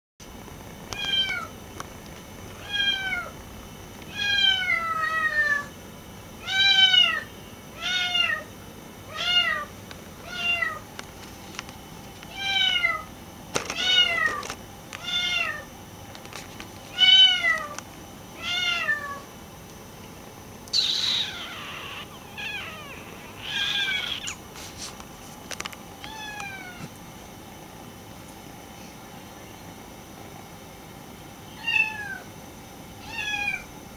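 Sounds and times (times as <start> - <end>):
kitten scratchy cries: 6.4 - 8.5, 15.0 - 15.7, 20.7 - 24.5, 26.1 - 26.9, 33.0 - 33.7
kitten meowing: 20.7 - 24.4.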